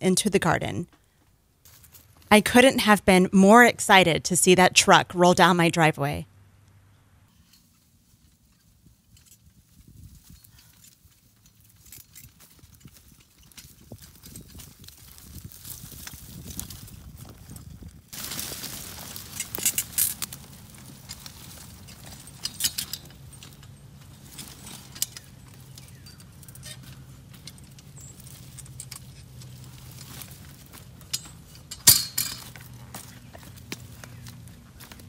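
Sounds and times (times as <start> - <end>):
metal cart clanks and rattles: 18.4 - 33.5.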